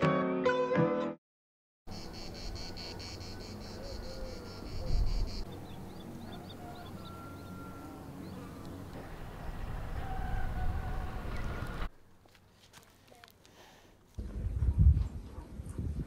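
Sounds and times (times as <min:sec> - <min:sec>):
insects chirping in pulses: 0:01.9 - 0:05.5.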